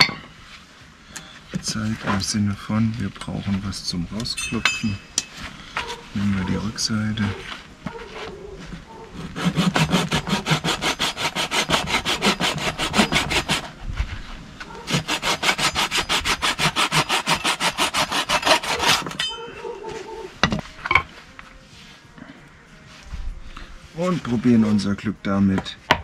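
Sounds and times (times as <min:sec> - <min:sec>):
hand saw cutting wood: 0:09.2 - 0:13.7, 0:14.9 - 0:19.2.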